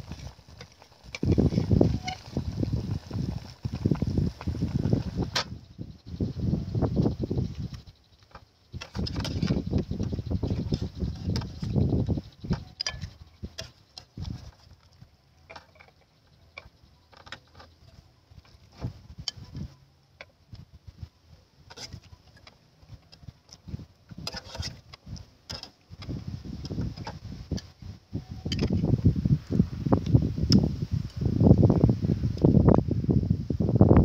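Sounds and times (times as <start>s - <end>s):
metal ladle scraping a pot: 24.2s - 24.9s.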